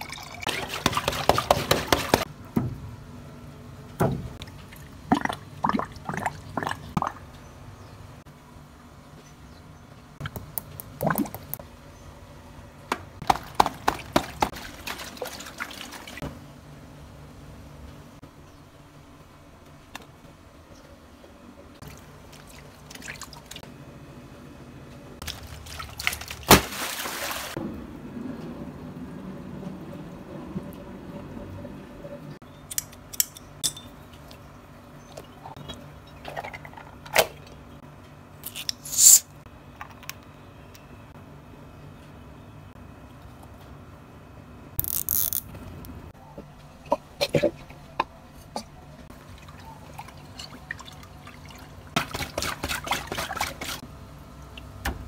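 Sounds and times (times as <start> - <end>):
water sloshing: 4.4 - 7.3, 13.3 - 16.2, 25.2 - 27.6, 49.1 - 53.8
rubber toy squeaking squeezed: 38.5 - 39.2.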